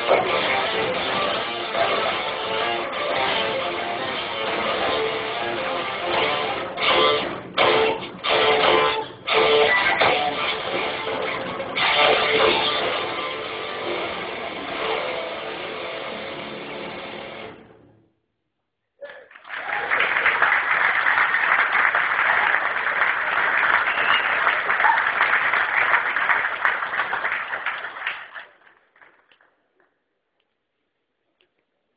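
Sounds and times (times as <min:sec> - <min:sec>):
audience applause: 0:19.0 - 0:29.8.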